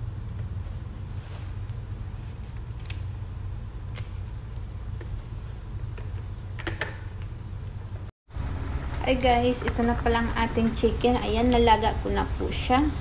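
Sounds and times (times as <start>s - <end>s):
leaves snapping off stems: 2.5s - 3.1s, 3.8s - 4.3s.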